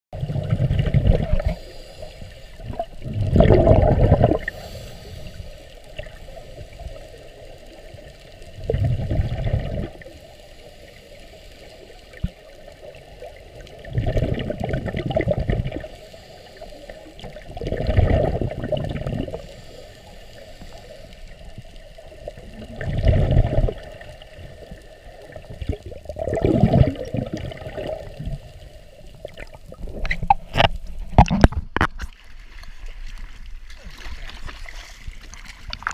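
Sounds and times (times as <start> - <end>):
bubbling exhaled air underwater: 0.2 - 11.0, 11.8 - 32.0
regulator hiss: 1.4 - 2.7, 4.4 - 8.6, 15.8 - 17.4, 19.3 - 22.4.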